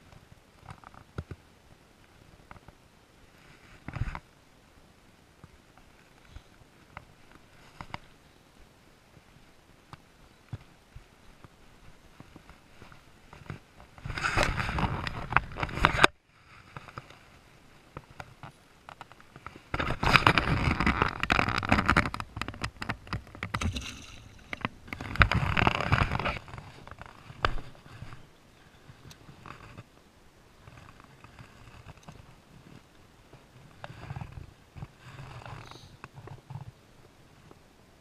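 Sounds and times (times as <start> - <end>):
rustling and knocking handling noise: 9.9 - 29.9.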